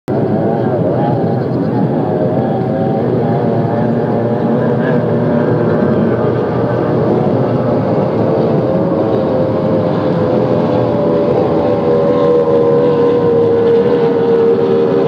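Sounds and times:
racing boat engines droning: 0:00.1 - 0:15.0.

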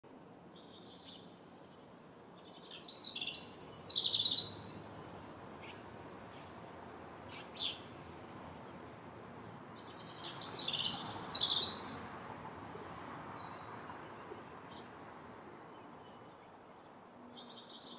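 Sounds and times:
wren trilled song: 0:02.4 - 0:04.6, 0:09.8 - 0:11.9.

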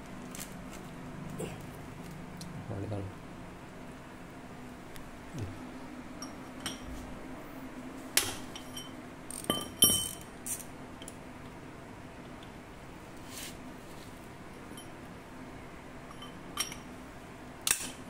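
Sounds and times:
socket wrench clinking on metal: 0:08.6 - 0:11.1, 0:16.1 - 0:16.9.

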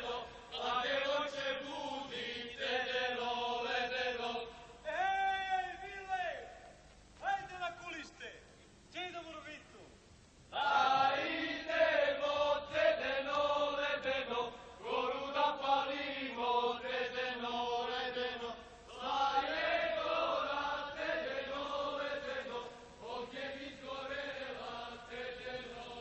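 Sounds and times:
men singing folk song: 0:00.0 - 0:04.6, 0:10.6 - 0:26.0.

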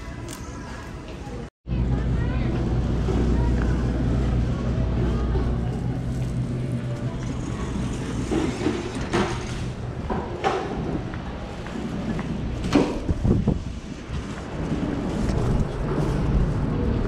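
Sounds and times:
building background noise: 0:00.0 - 0:17.0.

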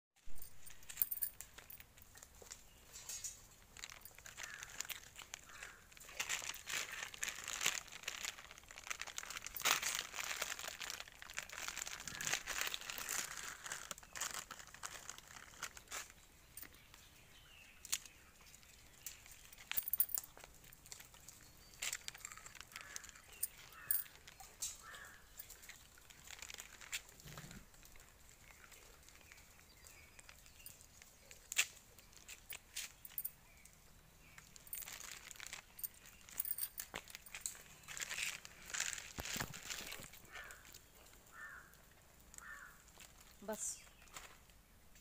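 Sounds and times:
rustling and crinkling: 0:00.2 - 0:45.0.

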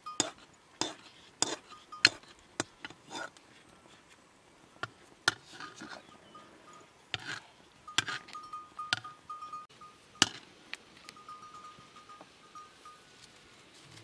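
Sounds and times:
metal ladle scraping cooking pot: 0:00.2 - 0:03.3, 0:05.3 - 0:06.1, 0:07.1 - 0:09.1.

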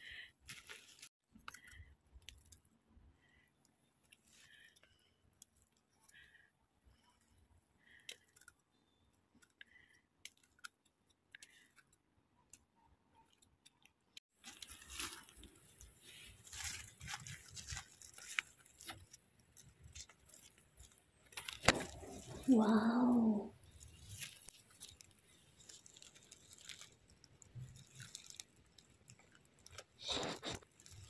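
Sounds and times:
dry leaves crackling: 0:14.4 - 0:31.0.

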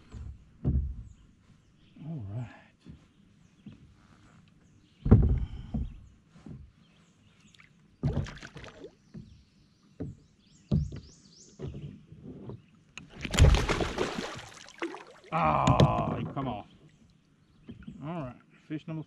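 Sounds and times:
knocks against kayak hull: 0:08.0 - 0:08.4.

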